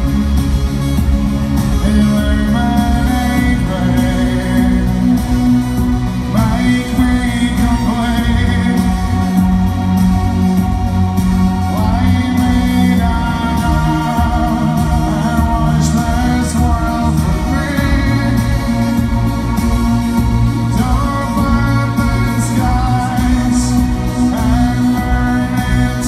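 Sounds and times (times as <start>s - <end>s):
band playing through loudspeakers: 0.0s - 26.0s
man singing: 1.5s - 26.0s.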